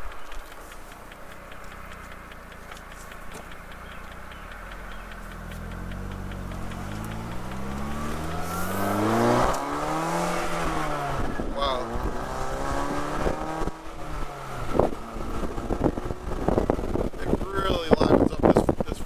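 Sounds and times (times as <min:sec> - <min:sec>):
car engine accelerating: 0:00.0 - 0:19.0
wind noise: 0:06.8 - 0:19.0.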